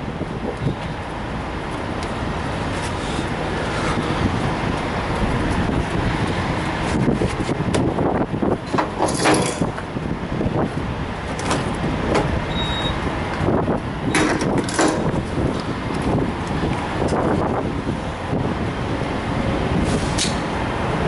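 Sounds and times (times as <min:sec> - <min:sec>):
truck diesel engines running: 0:00.0 - 0:21.0
brief high beep: 0:12.5 - 0:13.0.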